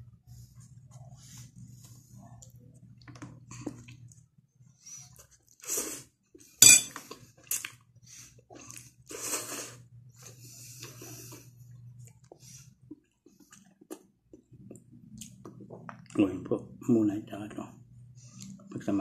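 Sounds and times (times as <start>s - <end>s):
low steady hum: 0.0s - 5.4s, 6.4s - 19.0s
slurping and chewing: 4.8s - 16.2s
fork clinking on glass bowl: 6.6s - 6.9s.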